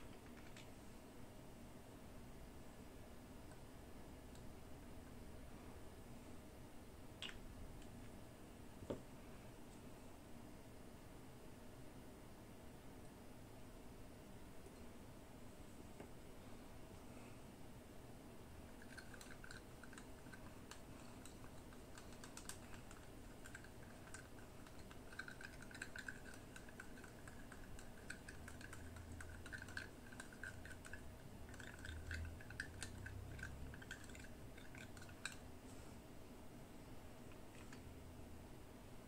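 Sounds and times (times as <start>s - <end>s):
paintbrush clicking in plastic cup: 18.8s - 35.4s.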